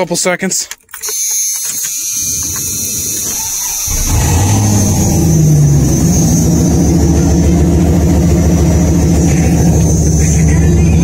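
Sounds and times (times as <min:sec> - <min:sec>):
car engine idling: 0:02.9 - 0:11.0.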